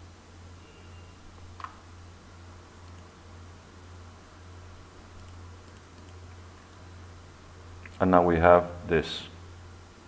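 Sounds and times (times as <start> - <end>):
faint hiss: 0.0 - 10.0
faint clicks: 5.2 - 6.2.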